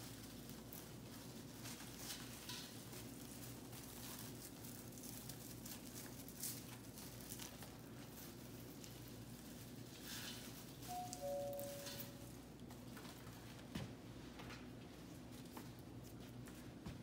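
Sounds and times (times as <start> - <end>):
garland rustling and crinkling: 0.0 - 13.6
low room hum: 0.0 - 17.0.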